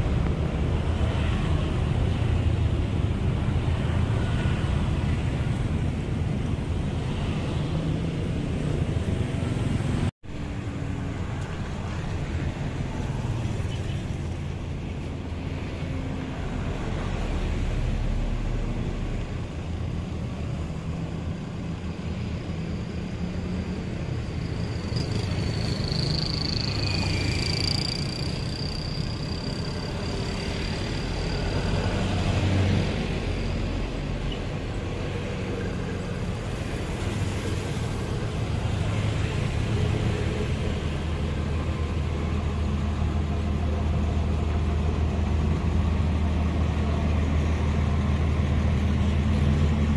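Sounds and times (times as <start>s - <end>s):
passing road traffic: 0.0s - 49.9s
road roller engine drone: 0.0s - 49.9s.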